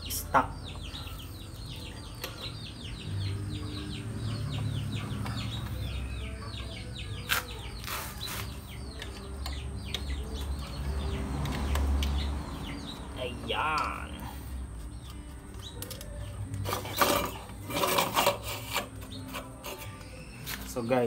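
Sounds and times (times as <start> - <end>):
small birds chirping: 0.0 - 21.0.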